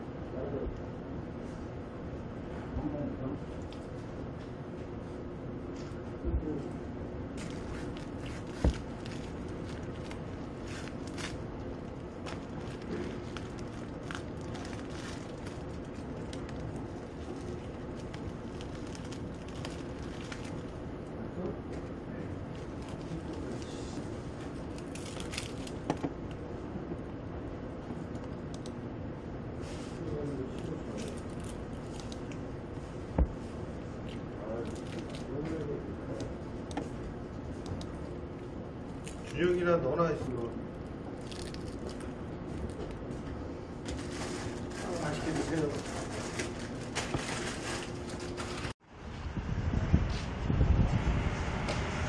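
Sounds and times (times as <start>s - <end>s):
steady background noise: 0.0s - 52.0s
steady room hum: 0.0s - 52.0s
plastic wrapper crinkling: 7.4s - 20.8s, 22.5s - 23.6s, 24.4s - 26.4s, 30.6s - 32.4s, 34.4s - 36.8s, 37.7s - 43.1s, 43.8s - 48.8s.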